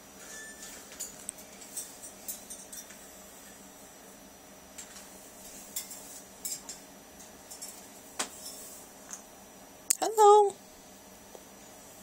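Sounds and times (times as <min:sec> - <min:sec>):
claws and beak clinking on cage bars: 0:00.2 - 0:03.0, 0:05.7 - 0:06.8, 0:07.5 - 0:08.6.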